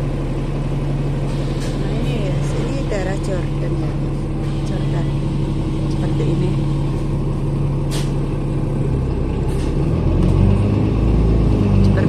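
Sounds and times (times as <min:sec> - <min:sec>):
bus engine drone: 0:00.0 - 0:12.0
road noise: 0:00.0 - 0:12.0.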